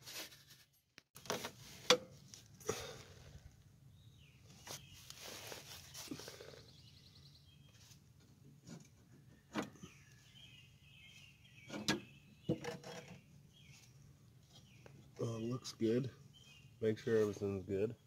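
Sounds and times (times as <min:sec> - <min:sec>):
birds chirping: 0:02.7 - 0:08.0, 0:09.0 - 0:18.0.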